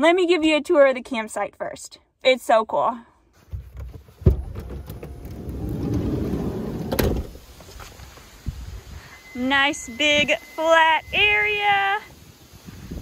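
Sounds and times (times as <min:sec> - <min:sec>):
sliding door latch clunk: 0:04.2 - 0:07.4
sliding door rumbling open: 0:04.2 - 0:07.5.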